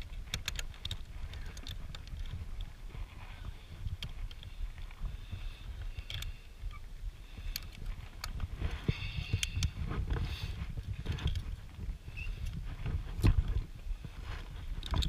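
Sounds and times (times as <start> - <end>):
carabiners clanking on steel cable: 0.0 - 12.6, 14.6 - 15.0.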